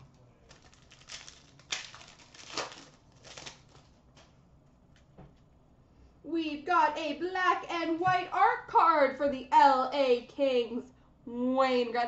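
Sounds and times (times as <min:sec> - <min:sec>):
cards rustling and crinkling: 0:00.0 - 0:04.3.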